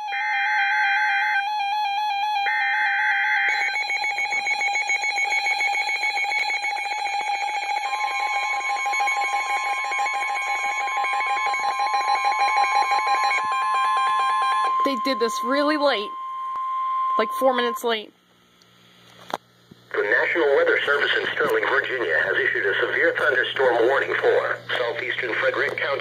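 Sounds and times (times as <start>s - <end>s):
electronic alarm pulsing rapidly: 0.0s - 18.1s
harsh buzzy data bursts: 3.0s - 18.0s
steady alert tone: 3.5s - 18.1s.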